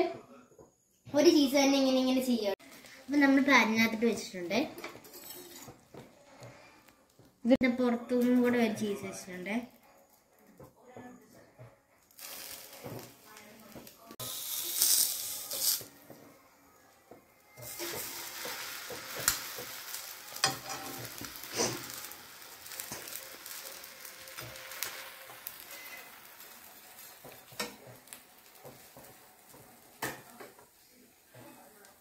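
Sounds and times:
bread sizzling on griddle: 0:12.0 - 0:16.4, 0:17.2 - 0:32.0.

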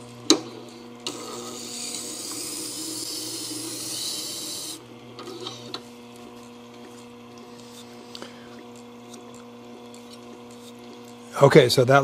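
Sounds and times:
grinder motor hum: 0:00.0 - 0:12.0
blade scraping on grinding stone: 0:09.0 - 0:11.0.

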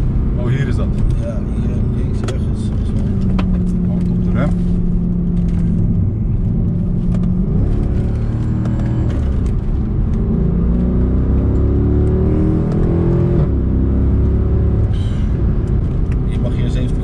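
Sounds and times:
car engine accelerating hard: 0:00.0 - 0:17.0.

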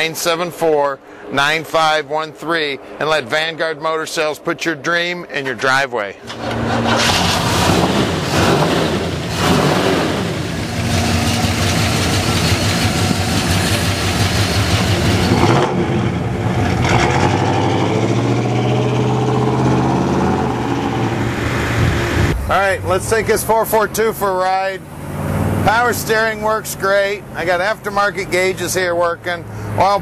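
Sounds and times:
car engine idling: 0:06.2 - 0:17.0.

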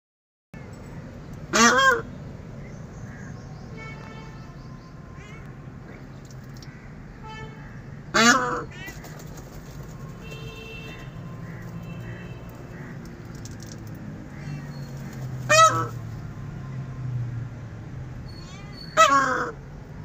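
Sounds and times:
peafowl calling: 0:01.5 - 0:02.1, 0:07.7 - 0:10.3, 0:14.3 - 0:16.0, 0:18.9 - 0:19.6.

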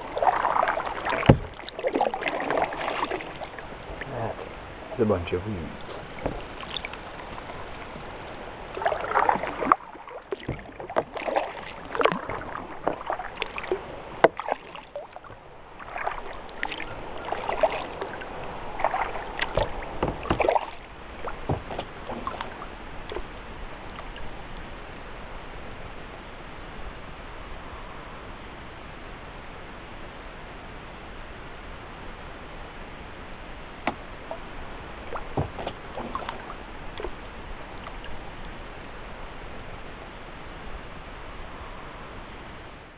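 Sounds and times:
kayak paddle splashing in water: 0:00.0 - 0:05.1, 0:05.7 - 0:24.9, 0:33.8 - 0:38.5.

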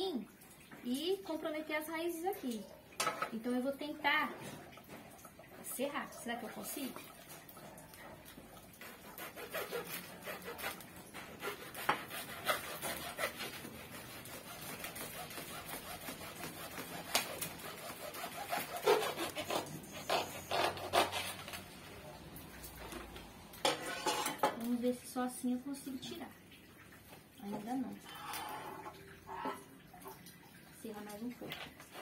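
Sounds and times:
hand saw scraping through soil: 0:09.0 - 0:21.4.

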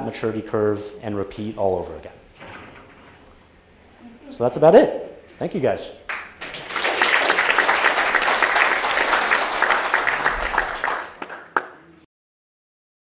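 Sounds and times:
audience applauding: 0:06.1 - 0:12.0.

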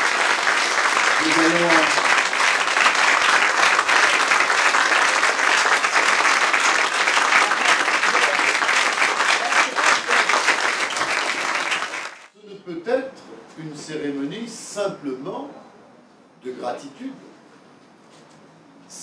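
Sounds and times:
crowd applauding: 0:00.0 - 0:12.3.

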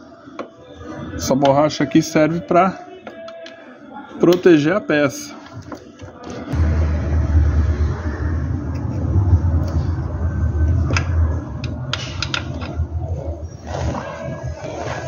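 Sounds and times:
handling noise rumble: 0:06.5 - 0:15.0.

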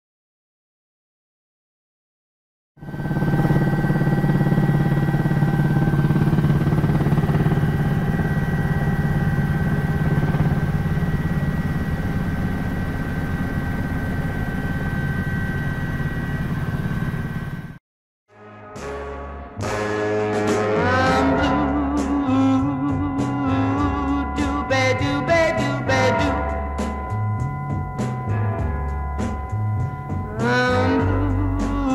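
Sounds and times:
helicopter rotor chop and drone: 0:02.8 - 0:17.8, 0:21.5 - 0:31.9
high whine: 0:02.8 - 0:17.8, 0:19.6 - 0:31.9.

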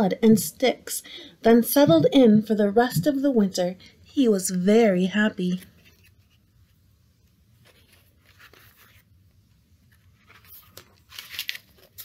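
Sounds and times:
paper page rustling: 0:07.5 - 0:12.0.

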